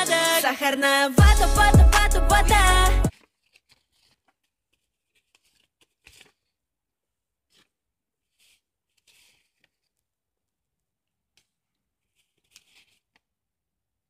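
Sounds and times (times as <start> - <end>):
paper rustling: 3.1 - 6.6, 7.4 - 10.1, 11.3 - 13.4.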